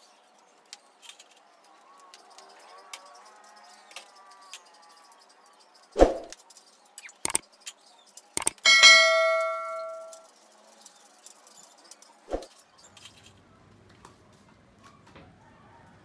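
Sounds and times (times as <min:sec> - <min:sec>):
sharp metal clicks: 0:07.0 - 0:07.6, 0:08.2 - 0:10.2
loud ringing metallic clang: 0:08.6 - 0:10.2.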